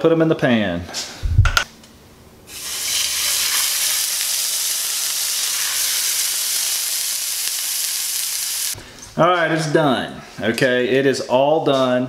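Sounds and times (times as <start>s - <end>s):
fish sizzling in a frying pan: 2.5s - 8.8s.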